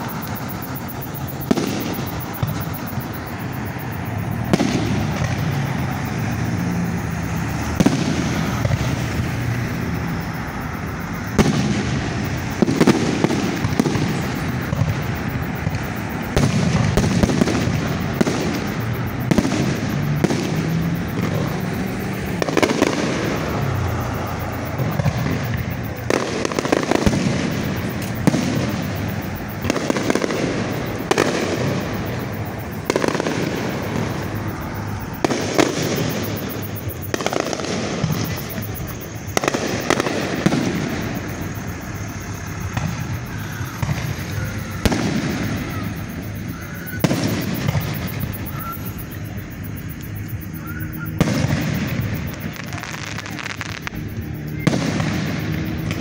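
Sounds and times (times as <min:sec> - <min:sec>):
fireworks shells bursting: 0:51.0 - 0:56.0.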